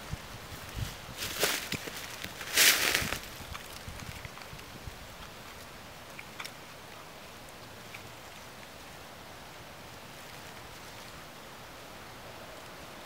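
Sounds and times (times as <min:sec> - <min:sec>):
faint outdoor air hiss: 0:00.0 - 0:13.0
dry leaves crackling: 0:00.5 - 0:04.7.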